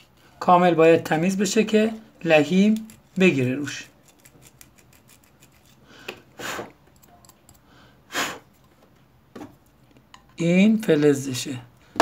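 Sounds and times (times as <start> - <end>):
breathy puffs of air: 7.7 - 8.5.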